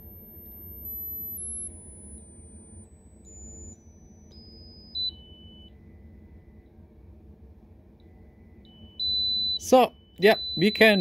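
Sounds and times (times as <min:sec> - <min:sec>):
high-pitched piezo tone stepping down: 0:08.0 - 0:11.0.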